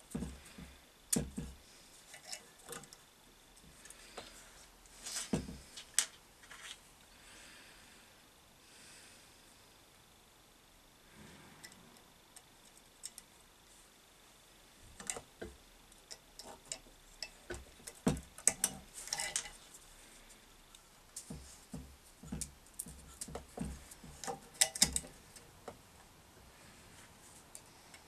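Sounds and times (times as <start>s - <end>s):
hands clicking and tapping metal parts: 0.0s - 3.0s, 12.4s - 13.3s, 14.9s - 25.8s.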